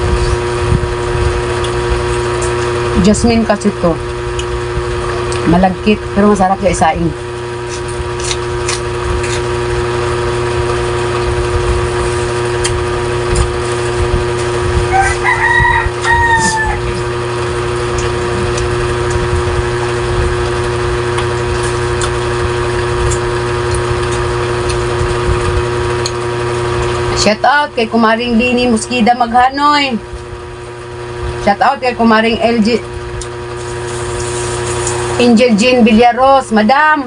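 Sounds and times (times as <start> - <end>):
steady machine hum: 0.0 - 37.0
rooster crowing: 14.8 - 17.1.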